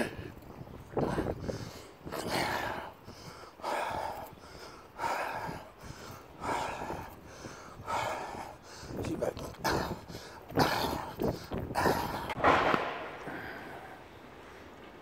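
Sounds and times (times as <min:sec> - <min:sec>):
man breathing through mouth: 0:01.0 - 0:09.0.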